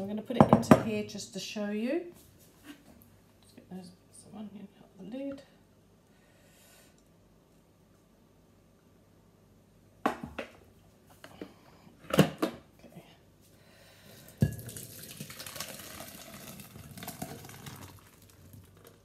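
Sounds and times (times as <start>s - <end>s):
soup pouring into a jug: 14.2s - 19.0s.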